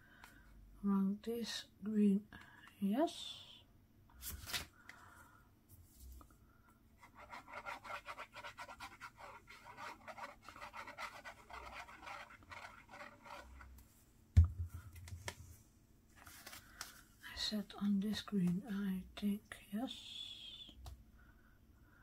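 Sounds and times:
scratchy strokes on paper: 7.0s - 13.7s.

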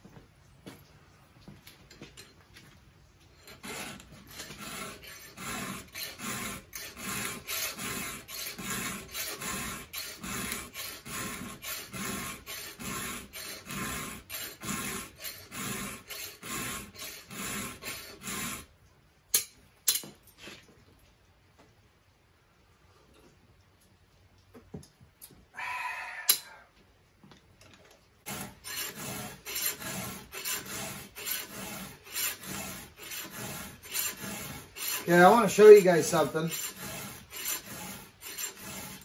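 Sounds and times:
file scraping chainsaw chain: 3.3s - 18.7s, 28.3s - 39.0s.

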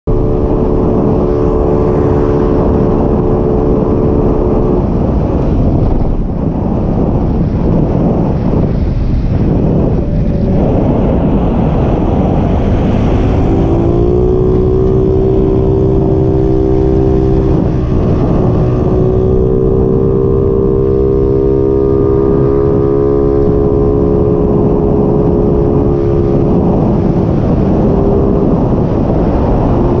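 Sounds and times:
scooter engine cruising: 0.1s - 5.4s, 10.0s - 30.0s
wind rumble on microphone: 0.1s - 30.0s.

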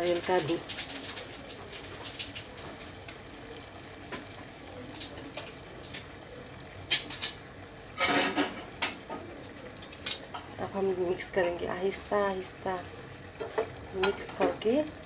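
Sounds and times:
curry simmering with low hiss: 0.0s - 15.0s
spoon knocking against pan: 13.4s - 14.4s.

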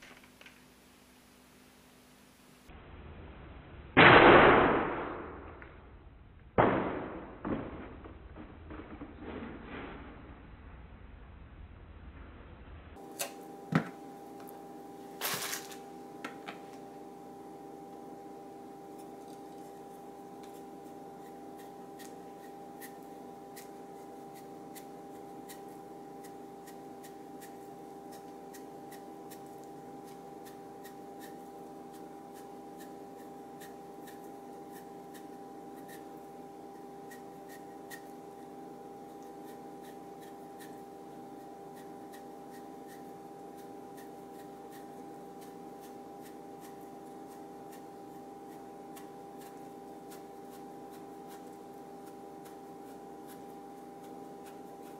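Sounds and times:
electrical hum: 0.0s - 54.9s
knife slicing radish: 18.9s - 54.9s.

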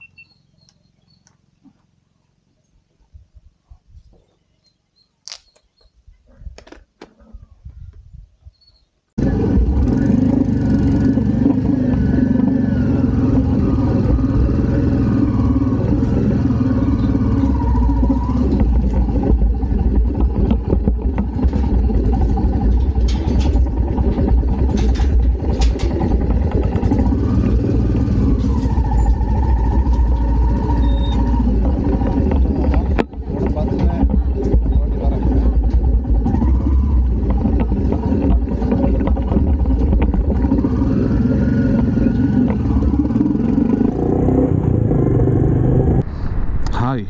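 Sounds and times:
motorcycle engine running: 9.2s - 46.0s.

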